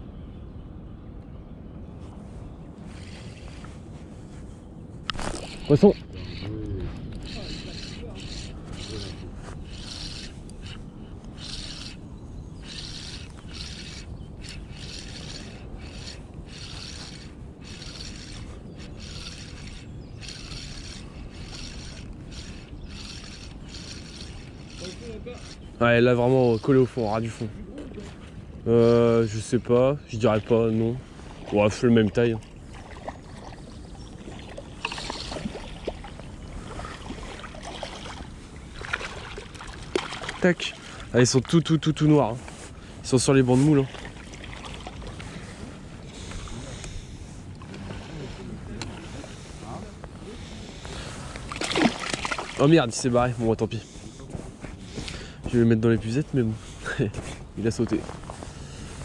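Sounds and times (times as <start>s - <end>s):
sleeve rubbing against camera: 2.1s - 12.0s
water lapping: 5.1s - 56.9s
fish splashing at surface: 51.5s - 52.6s.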